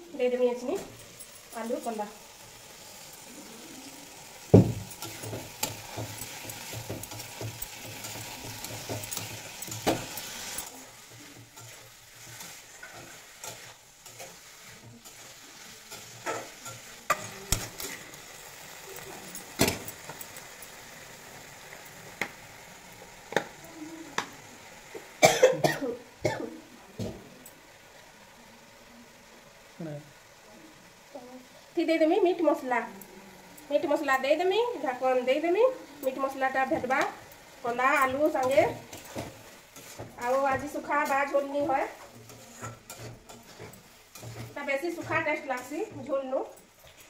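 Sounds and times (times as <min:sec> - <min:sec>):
curry sizzling in pan: 0:00.0 - 0:47.0
metal spatula scraping pan: 0:36.0 - 0:46.2.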